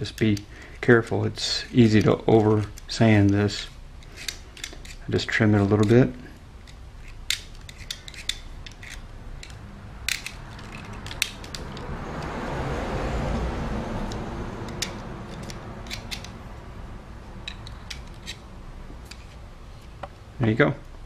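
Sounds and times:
broad rushing noise: 9.6 - 20.4.

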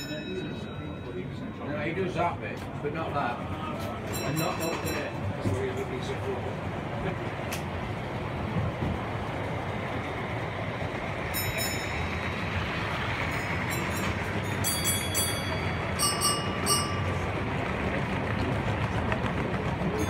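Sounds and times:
model trains running: 0.0 - 20.0
sharp metallic clinks: 4.1 - 6.0, 11.3 - 17.3.

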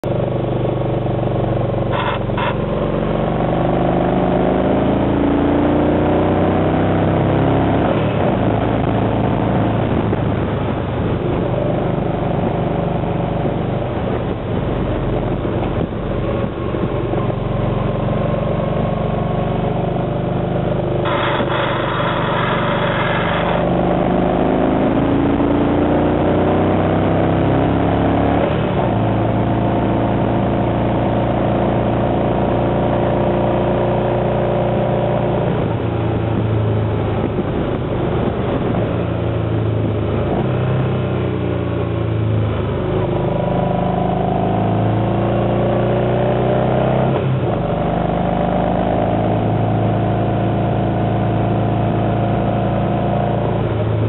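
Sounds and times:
motorcycle engine running: 0.0 - 54.0
road and wind noise: 0.0 - 54.0
harsh metal scraping on road: 1.9 - 3.1, 21.0 - 24.2.

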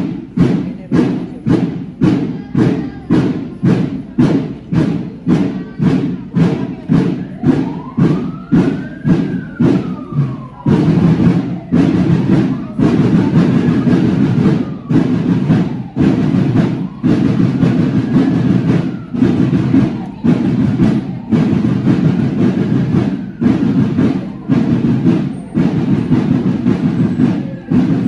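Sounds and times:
parade drums beating a marching cadence: 0.0 - 28.0
faint siren rising and falling: 7.2 - 25.6.

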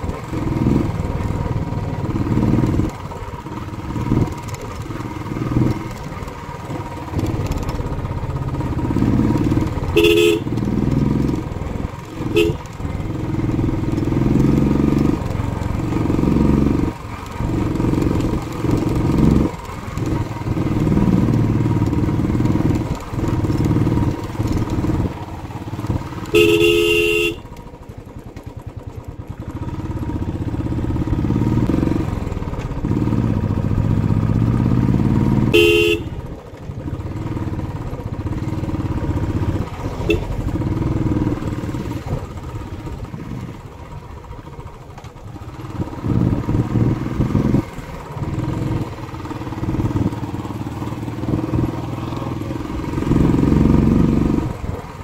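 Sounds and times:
motorcycle engine running: 0.0 - 55.0
motorcycle horn beeping: 9.8 - 10.7, 12.2 - 12.8, 26.1 - 27.6, 35.4 - 36.3, 40.0 - 40.5.

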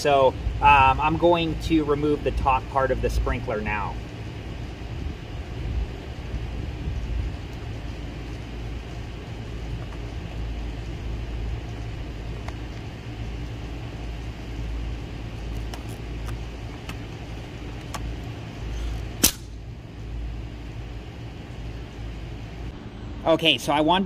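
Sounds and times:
steady low rumble: 0.0 - 24.0
loud plastic snap: 19.2 - 19.6.

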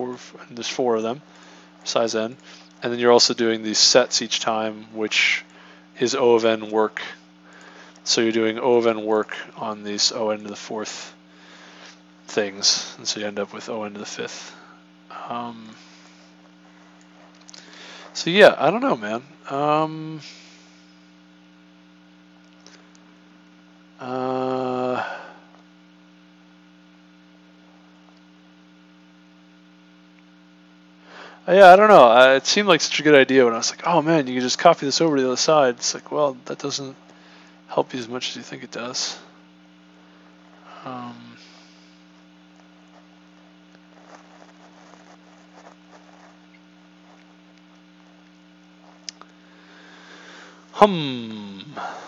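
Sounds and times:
faint electrical hum: 0.0 - 52.0
man humming: 24.0 - 25.5, 40.0 - 46.3, 50.6 - 52.0
faint small ticks and rustles: 41.4 - 49.4.

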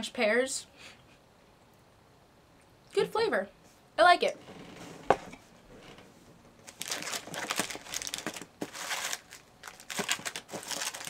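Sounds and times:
snack packaging crinkling: 6.6 - 11.0.

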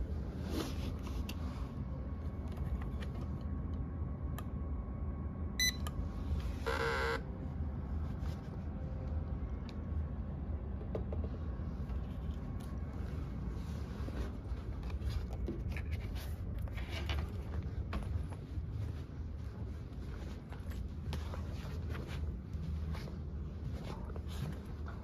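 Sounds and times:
low room hum: 0.0 - 25.0
barcode scanner beeping: 5.6 - 5.9.

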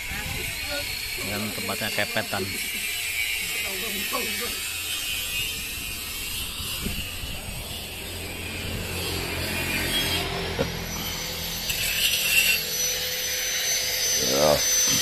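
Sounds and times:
vehicle engine humming: 5.8 - 15.0.

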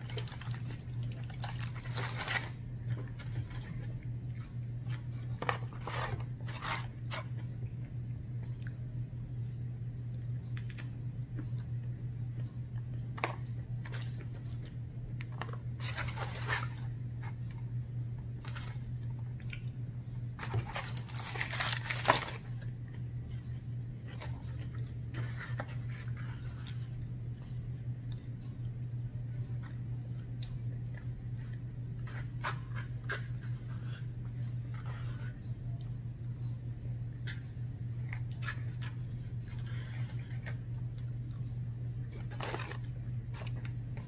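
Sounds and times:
paper and foil rustling: 0.0 - 4.0, 4.9 - 7.4, 15.4 - 17.6, 20.4 - 22.7, 42.1 - 43.7
chewing and crunching fried food: 0.0 - 9.3, 10.0 - 44.0
steady low hum: 0.0 - 44.0.

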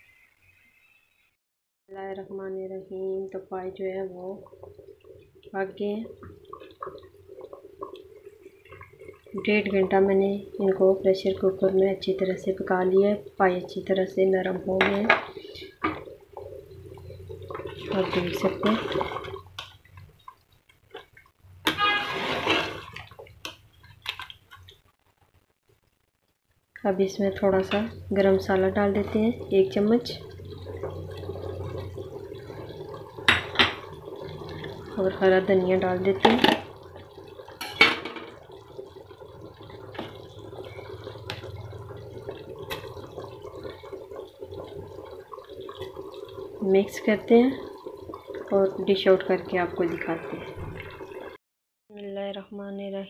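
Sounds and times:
curry bubbling in a pot: 2.2 - 51.4.

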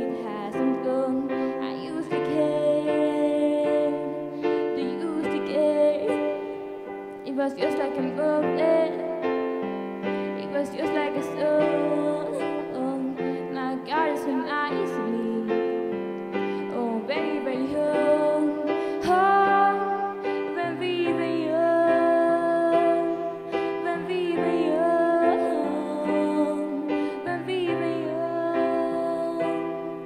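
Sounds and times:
woman singing with vibrato: 0.0 - 6.5, 7.3 - 9.3, 10.4 - 15.6, 16.6 - 30.0
keyboard piano chords: 0.0 - 30.0.

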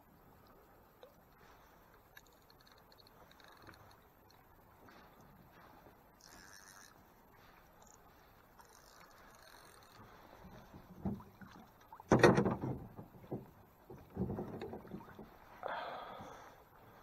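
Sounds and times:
knocks on boat side: 12.1 - 15.3.

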